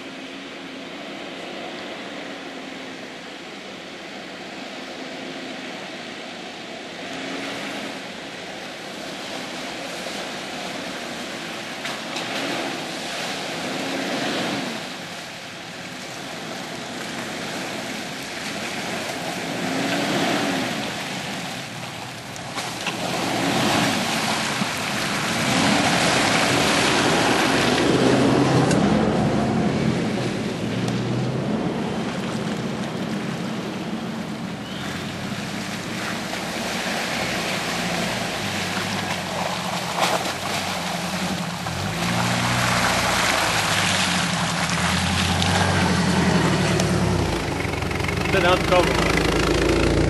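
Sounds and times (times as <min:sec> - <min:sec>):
wheels churning mud and water: 0:00.0 - 0:50.0
off-road engines revving: 0:34.7 - 0:50.0.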